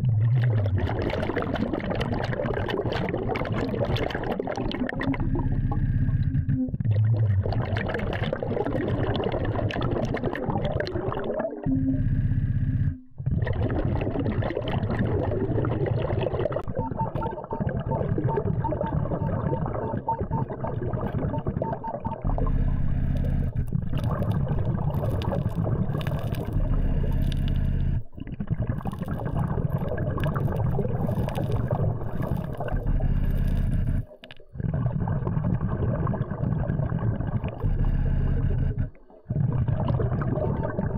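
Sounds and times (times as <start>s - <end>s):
underwater bubbling and gurgling: 0.0s - 40.9s
steady low hum: 22.2s - 28.2s, 32.3s - 34.2s, 37.6s - 39.0s.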